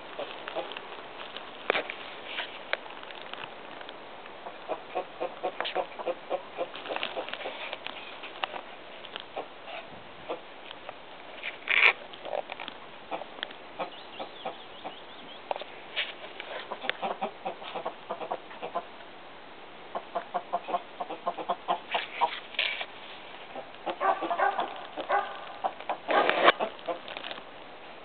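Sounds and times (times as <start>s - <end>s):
hens clucking: 0.1s - 0.8s, 4.4s - 8.7s, 9.3s - 10.5s, 13.1s - 15.0s, 16.4s - 18.9s, 19.9s - 22.4s, 23.4s - 27.2s.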